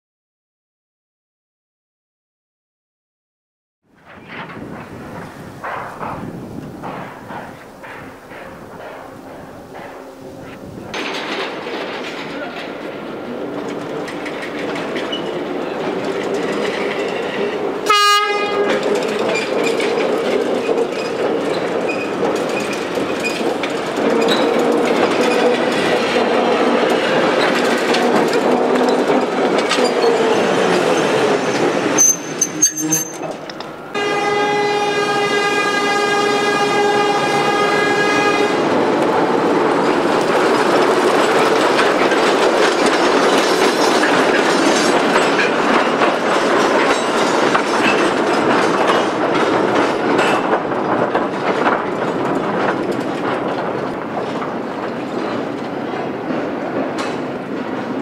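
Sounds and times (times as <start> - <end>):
wheels clattering over track: 4.0 - 33.8, 39.0 - 58.0
locomotive horn blasts: 17.9 - 18.8, 33.9 - 38.7.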